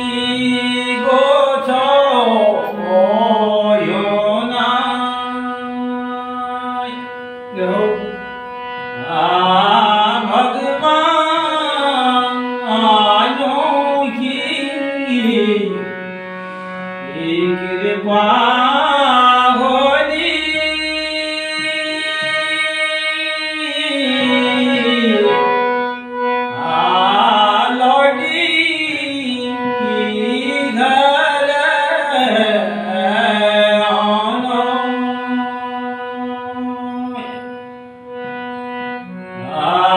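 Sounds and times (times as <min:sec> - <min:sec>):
man singing folk song: 0:00.0 - 0:07.0, 0:26.6 - 0:37.1
steady drone: 0:14.6 - 0:39.9.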